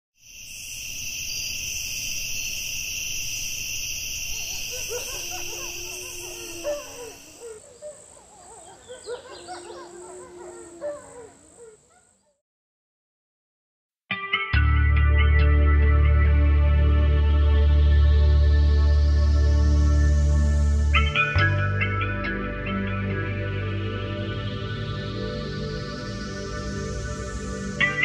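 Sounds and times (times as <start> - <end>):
insects chirring: 0.2 - 12.3
warbling calls: 4.2 - 11.9.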